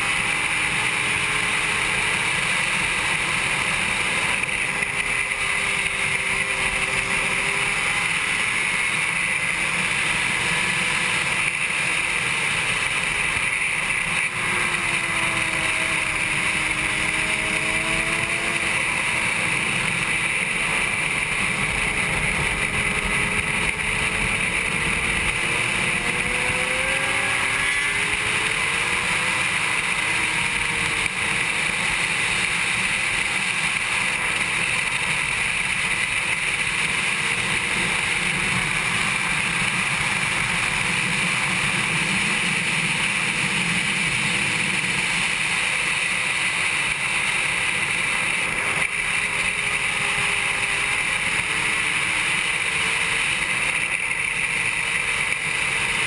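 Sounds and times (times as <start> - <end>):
motorcycle engine accelerating: 0.0 - 56.0.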